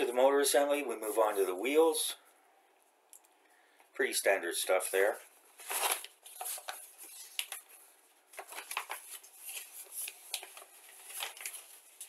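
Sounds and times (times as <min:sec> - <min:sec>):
paper rustling and crinkling: 0:05.0 - 0:12.0.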